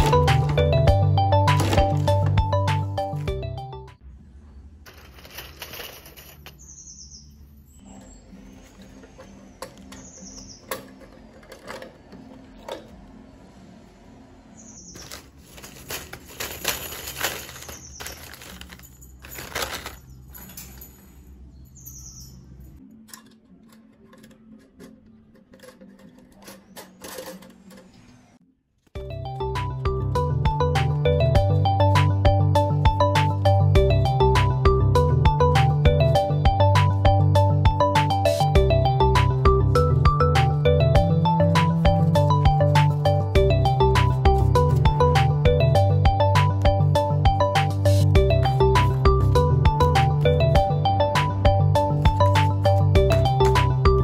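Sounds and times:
bird chirps: 0:06.6 - 0:10.8, 0:14.5 - 0:15.2, 0:21.5 - 0:22.6.

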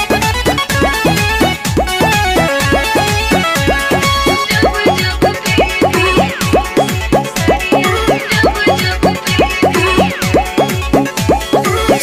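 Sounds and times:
film song music: 0:00.0 - 0:12.0.

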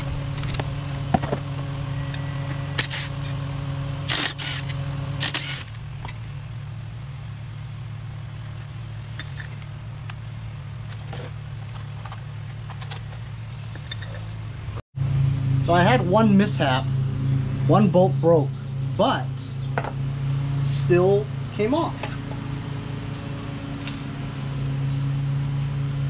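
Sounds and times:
low motor hum: 0:00.0 - 0:26.0
metallic clicks and clatter: 0:10.9 - 0:14.3.

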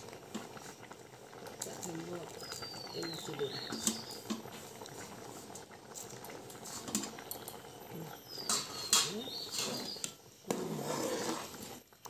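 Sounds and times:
metal ladle stirring in pot: 0:03.6 - 0:07.3, 0:08.3 - 0:11.8
ladle scraping and clinking: 0:08.3 - 0:11.8.

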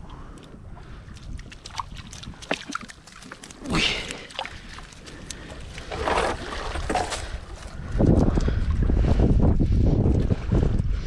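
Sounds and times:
water splashing and dripping: 0:00.0 - 0:08.6.

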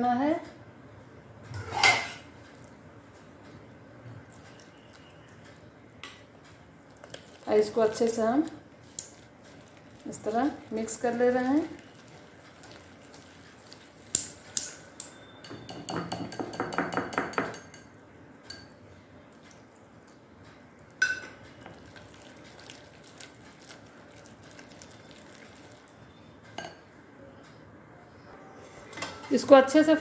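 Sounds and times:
whisk clinking on glass: 0:14.1 - 0:17.9.

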